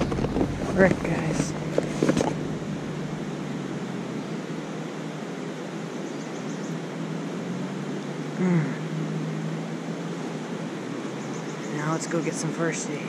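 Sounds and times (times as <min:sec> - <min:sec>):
faint steady hum: 0:00.0 - 0:13.0
hissing outdoor background noise: 0:00.0 - 0:13.0
man's falling vocal sound: 0:08.4 - 0:08.9.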